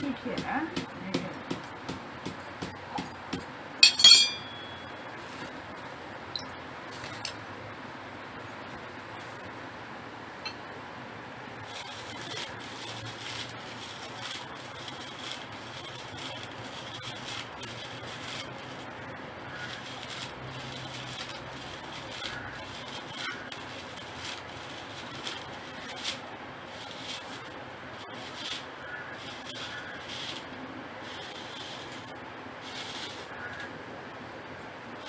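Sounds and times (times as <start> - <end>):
dry leaf ribs and cord rustling: 11.6 - 33.7.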